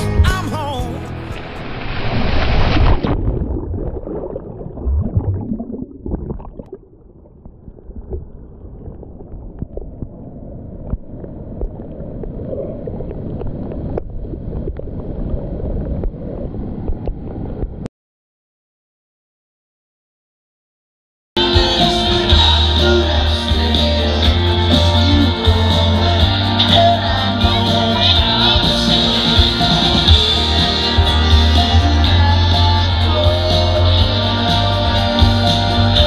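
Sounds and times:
wave rushing: 1.1 - 6.5
sea water sloshing and splashing: 1.4 - 16.4.

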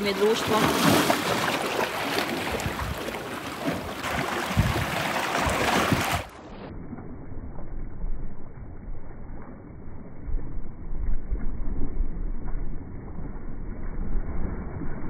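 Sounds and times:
sea washing against rocks: 0.0 - 6.6
wind buffeting microphone: 2.3 - 6.3.

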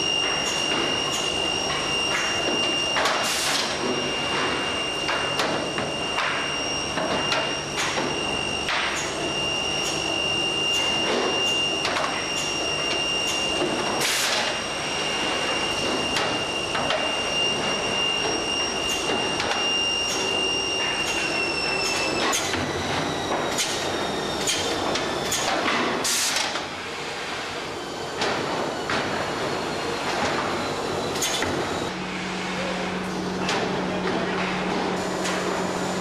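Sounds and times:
machine high whine: 0.0 - 36.0.

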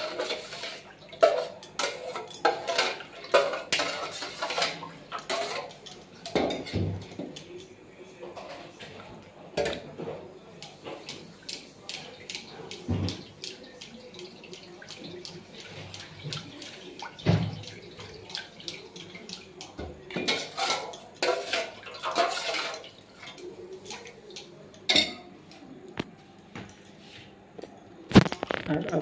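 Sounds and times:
steel spoon and bowls clinking: 0.0 - 7.8, 16.3 - 25.3
milk pouring and splashing: 10.8 - 24.5.

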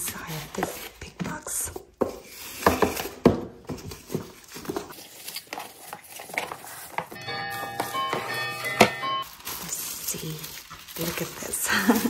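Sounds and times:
ribbon rustling: 3.6 - 12.0.

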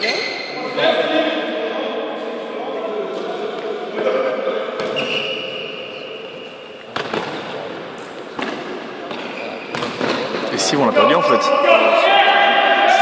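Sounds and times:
ball kicked in echoing hall: 4.7 - 5.7, 6.8 - 10.5.

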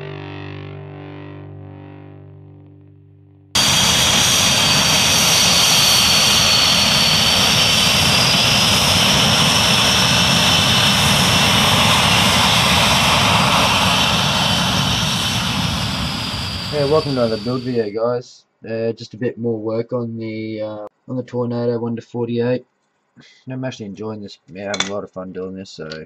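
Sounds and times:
jet engine roar with whine: 3.6 - 17.8.

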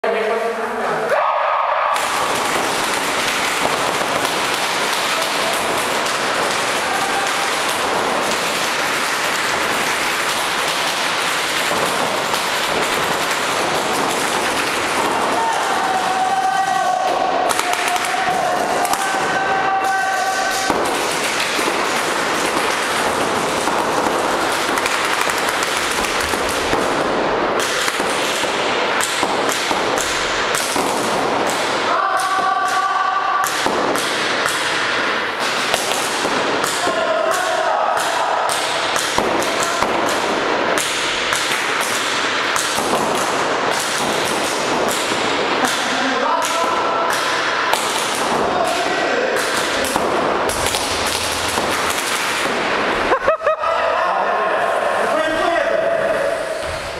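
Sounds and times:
players shouting: 1.0 - 27.1, 30.5 - 40.8, 53.0 - 56.7
balls smacking into walls: 1.9 - 53.1
paintball markers firing: 2.0 - 52.8.

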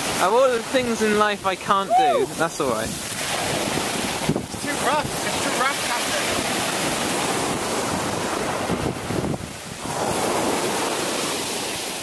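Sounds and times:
waves breaking on beach: 0.0 - 12.0
wind on microphone: 0.0 - 12.0.

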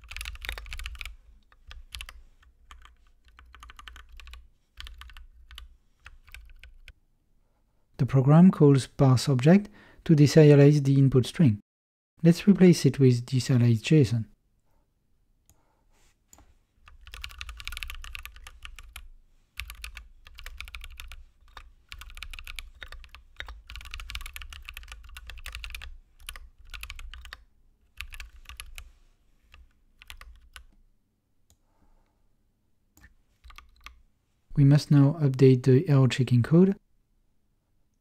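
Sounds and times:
typing on computer keyboard: 0.0 - 7.0, 16.9 - 19.0, 19.6 - 27.4, 28.0 - 28.8, 29.5 - 30.8, 33.0 - 34.0.

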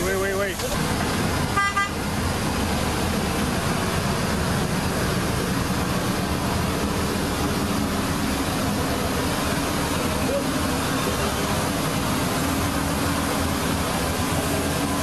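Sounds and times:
forklift engine running: 0.0 - 15.0.

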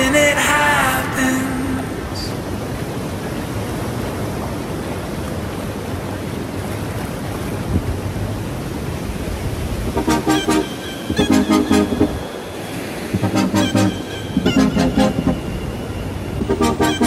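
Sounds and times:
wind: 0.0 - 17.0
horn tooting: 9.9 - 12.6, 13.2 - 17.0.

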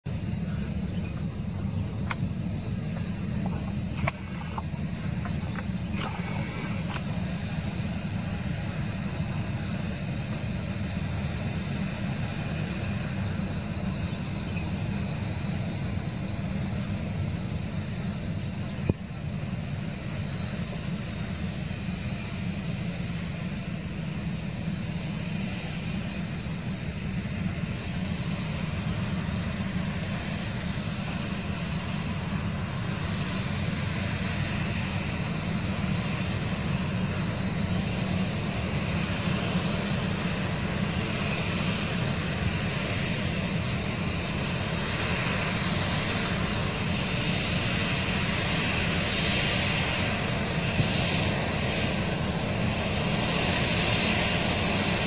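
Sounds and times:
jet engines idling: 0.0 - 55.0
sharp click: 3.9 - 7.1.

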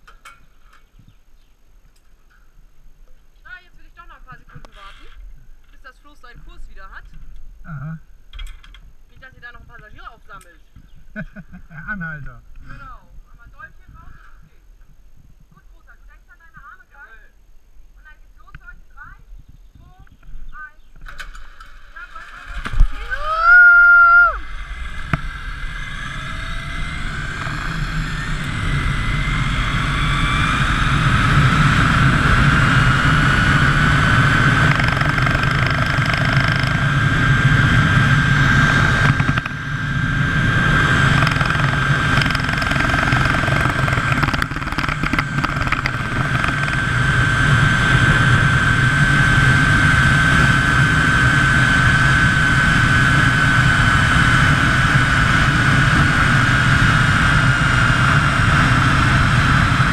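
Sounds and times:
zipline pulleys whining on cable: 21.0 - 59.9
wind rushing on microphone: 22.2 - 59.9.

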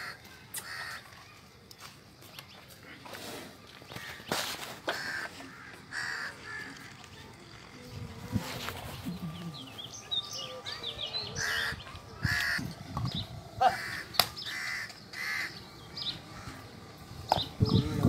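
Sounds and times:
crows cawing: 0.0 - 1.0, 4.0 - 6.8, 11.4 - 12.6, 13.6 - 15.6, 16.3 - 16.6
small birds chirping: 5.7 - 18.0.

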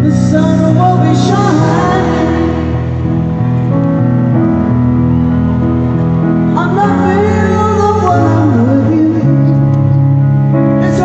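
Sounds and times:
person singing: 0.0 - 3.4, 6.5 - 9.9, 10.7 - 11.0
piano chords: 0.0 - 11.0.

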